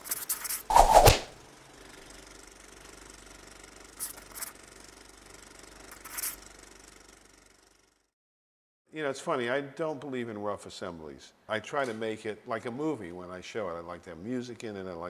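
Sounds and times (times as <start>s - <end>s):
marker scratching on tape: 0.0s - 1.3s, 6.0s - 6.4s.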